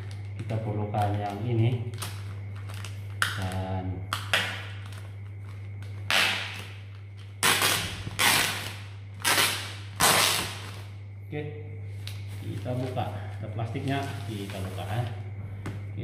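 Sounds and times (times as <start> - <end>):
plastic wrapping crinkling: 0.0 - 3.6.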